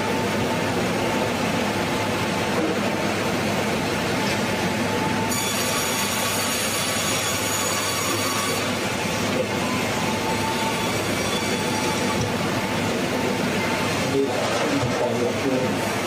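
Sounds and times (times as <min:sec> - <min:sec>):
sawmill machinery noise: 0:00.0 - 0:16.0
high-pitched blade whine: 0:05.2 - 0:08.8, 0:09.6 - 0:12.8.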